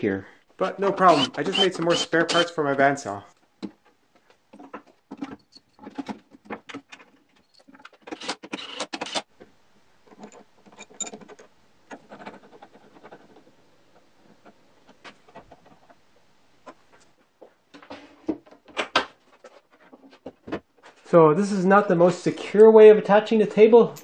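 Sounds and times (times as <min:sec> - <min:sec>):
clicks and clatter of saw parts: 0:04.6 - 0:09.3.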